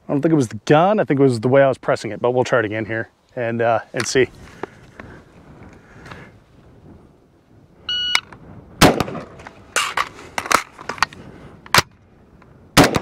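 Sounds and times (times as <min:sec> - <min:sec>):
shot timer beep: 0:07.9 - 0:08.2
rifle shots: 0:08.8 - 0:09.9, 0:12.8 - 0:13.0
magazine clacks: 0:09.0 - 0:12.0.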